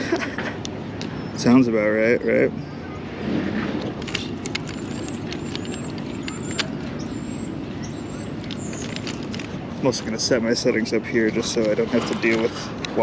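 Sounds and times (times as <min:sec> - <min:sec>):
wind rumble on microphone: 0:02.9 - 0:07.0
tripod and camera handling clicks: 0:03.8 - 0:06.8, 0:08.4 - 0:09.6.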